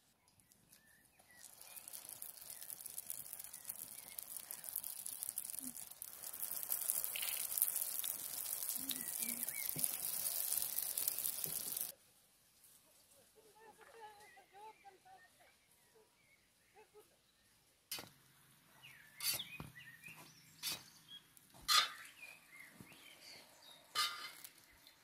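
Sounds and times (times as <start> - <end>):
hot oil sizzling and crackling: 0.4 - 12.0, 18.8 - 25.0.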